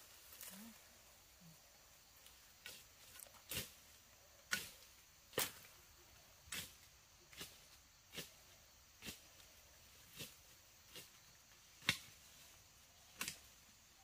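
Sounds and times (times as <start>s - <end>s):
digging tool striking ground: 11.8s - 12.2s.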